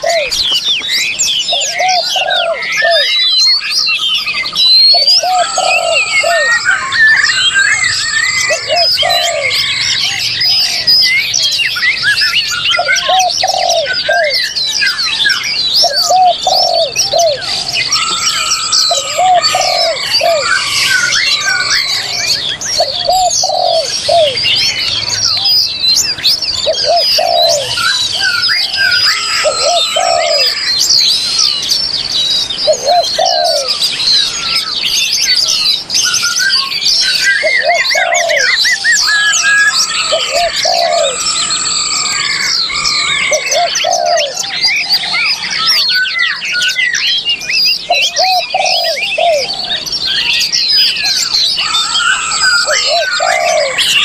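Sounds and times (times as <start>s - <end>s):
dove cooing: 0.0s - 0.8s, 1.5s - 3.4s, 4.6s - 11.2s, 12.6s - 24.9s, 26.5s - 30.9s, 32.6s - 33.9s, 37.1s - 45.3s, 47.9s - 49.8s, 51.6s - 54.0s
songbirds singing and chirping: 0.0s - 54.0s.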